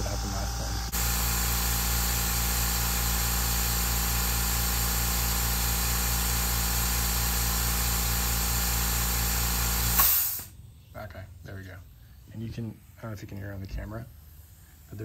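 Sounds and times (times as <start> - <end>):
air compressor running: 0.0 - 10.5.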